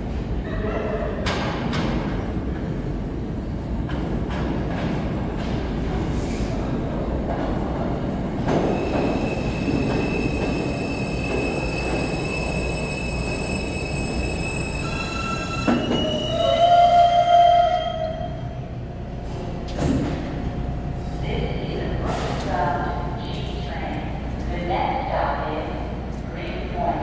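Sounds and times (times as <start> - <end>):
subway train rumble: 0.0 - 27.0
train brakes squealing: 8.5 - 18.4.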